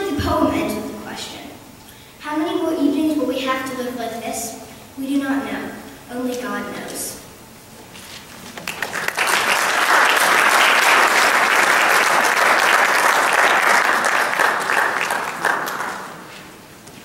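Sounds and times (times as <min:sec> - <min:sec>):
audience applauding: 0:08.6 - 0:16.3.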